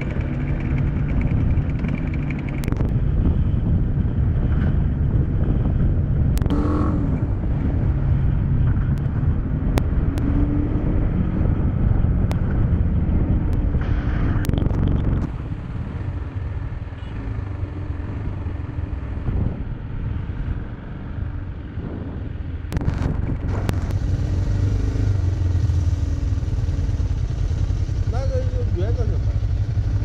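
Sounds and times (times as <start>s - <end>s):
motorcycle engine running: 0.0s - 13.8s, 22.8s - 30.0s
wind rumbling over microphone: 0.0s - 30.0s.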